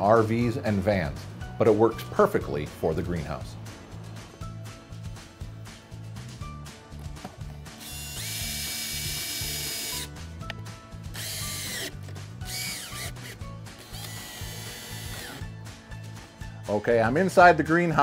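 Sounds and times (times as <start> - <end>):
background music with steady beat: 0.0 - 18.0
cordless drill driving screws: 7.8 - 10.1, 11.1 - 15.4.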